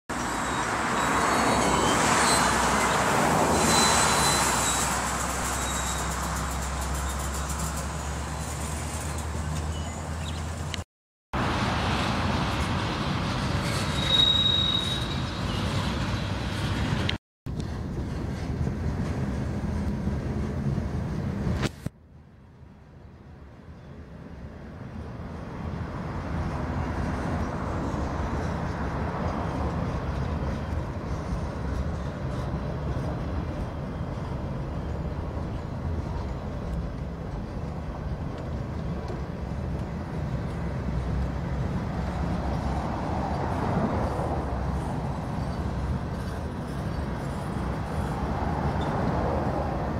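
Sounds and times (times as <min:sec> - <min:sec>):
high wheel squeal: 0:00.1 - 0:10.4, 0:13.5 - 0:16.8
train wheels rumbling on rail: 0:00.1 - 0:10.8, 0:11.4 - 0:21.9, 0:23.1 - 0:49.9.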